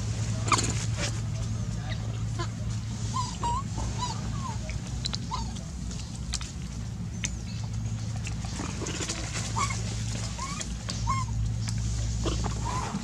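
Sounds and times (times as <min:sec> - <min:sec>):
steady low hum: 0:00.0 - 0:13.0
macaques squeaking: 0:01.9 - 0:05.7, 0:08.6 - 0:13.0.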